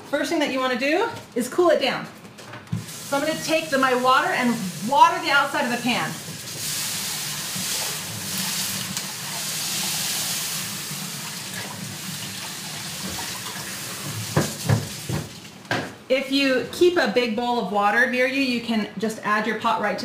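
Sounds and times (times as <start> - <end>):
water hissing on hot pan: 2.8 - 15.1.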